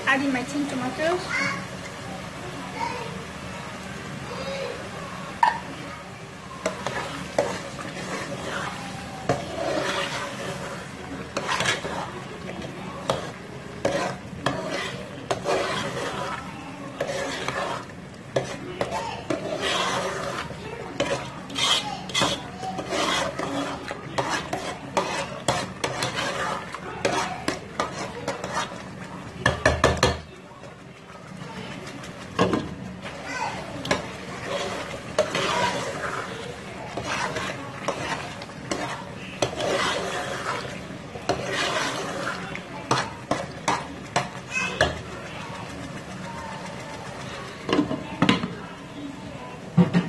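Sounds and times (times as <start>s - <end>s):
sauce sizzling: 0.0s - 29.5s, 30.6s - 47.7s
spoon scraping metal saucepan: 6.6s - 30.2s, 31.9s - 45.8s.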